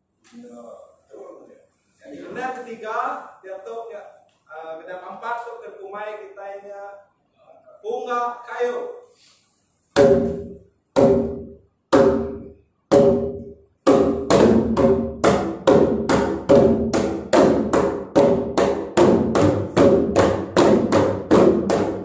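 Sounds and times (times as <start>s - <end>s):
hand drums struck in unison: 10.0s - 22.0s.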